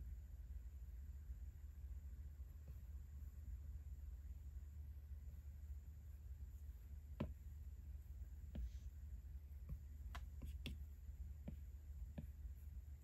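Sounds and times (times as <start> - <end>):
stylus tapping on screen: 7.1 - 7.5, 9.6 - 12.6.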